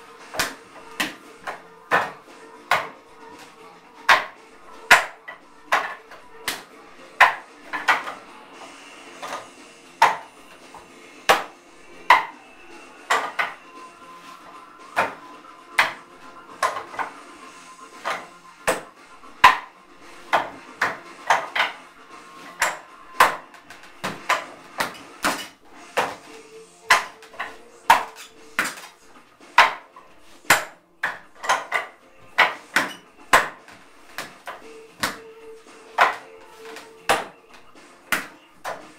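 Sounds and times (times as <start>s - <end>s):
sharp wooden knocks: 4.1s - 8.2s, 10.0s - 10.3s, 13.1s - 13.6s, 15.0s - 15.2s, 20.3s - 21.8s, 29.6s - 29.9s.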